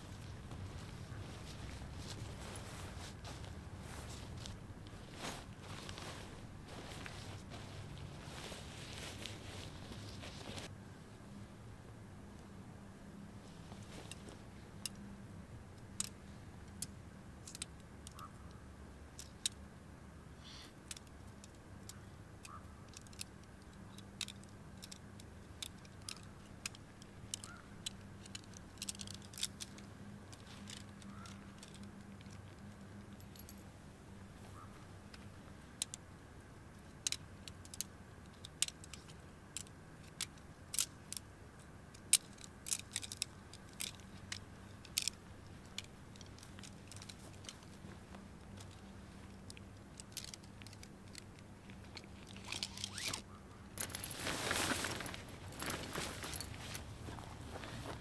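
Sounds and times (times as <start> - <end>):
faint steady background: 0.0 - 58.0
metallic clicks of tent gear: 15.8 - 19.6, 20.8 - 33.7, 36.8 - 56.9.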